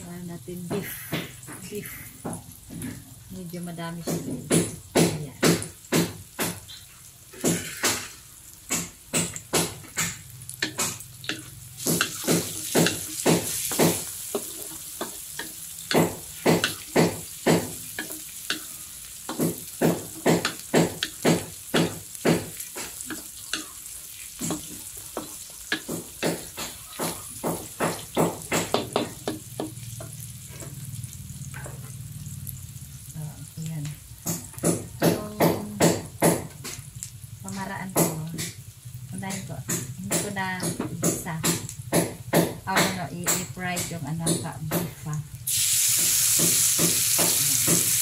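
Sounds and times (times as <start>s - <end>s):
onion and garlic sizzling in oil: 0.0s - 48.0s
wooden spatula scraping metal wok: 9.8s - 30.9s.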